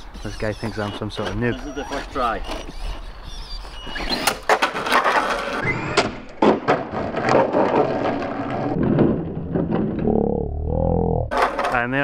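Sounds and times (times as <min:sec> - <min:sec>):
sharp knocks and crackles: 0:06.0 - 0:10.1.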